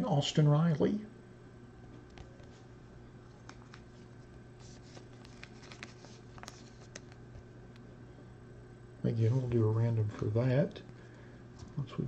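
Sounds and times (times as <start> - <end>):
steady low hum: 0.0 - 12.0
cards being flipped by hand: 3.4 - 7.8.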